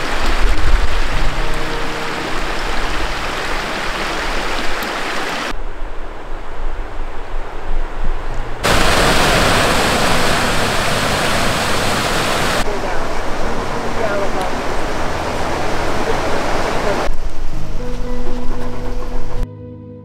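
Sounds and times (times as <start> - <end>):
water rushing over rocks: 0.0 - 5.6, 8.6 - 17.1.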